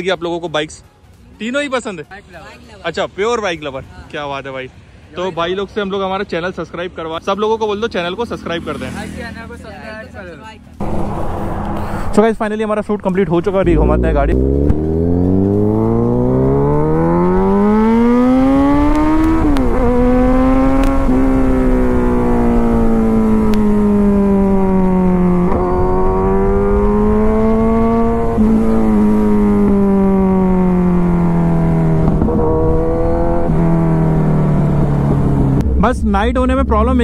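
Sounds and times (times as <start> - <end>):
motorcycle engine accelerating: 13.2 - 37.0.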